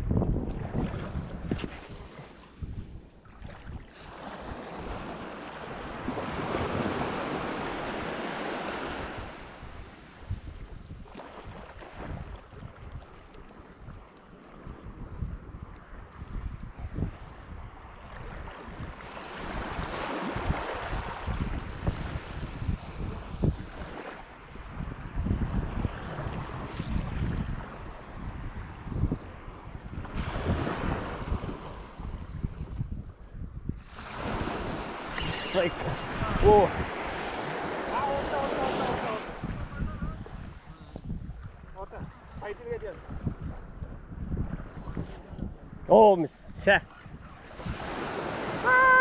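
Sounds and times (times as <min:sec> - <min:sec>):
wind buffeting the microphone: 0:00.0 - 0:49.0
small waves washing on shore: 0:00.1 - 0:32.9, 0:33.8 - 0:49.0
wave washing up sandy shore: 0:04.0 - 0:10.2, 0:33.9 - 0:40.7, 0:47.5 - 0:49.0.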